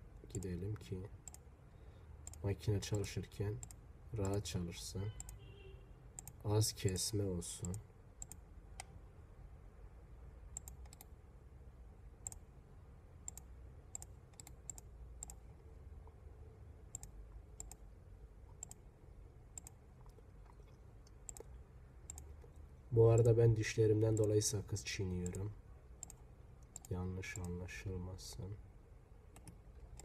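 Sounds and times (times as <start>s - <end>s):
low room hum: 0.0s - 30.0s
computer mouse clicks: 0.3s - 1.5s, 2.2s - 2.5s, 3.6s - 4.4s, 6.2s - 7.0s, 7.6s - 9.0s, 10.5s - 11.1s, 12.2s - 12.4s, 13.2s - 15.5s, 16.9s - 17.8s, 18.5s - 18.8s, 19.5s - 22.6s, 24.1s - 24.4s, 25.2s - 27.6s, 29.3s - 30.0s.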